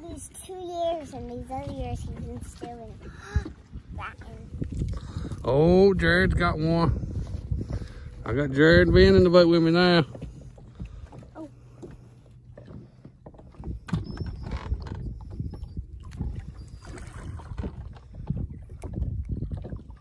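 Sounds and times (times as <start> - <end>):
waves lapping against boat hull: 0.0 - 20.0
wind on microphone: 0.8 - 11.2, 13.4 - 20.0.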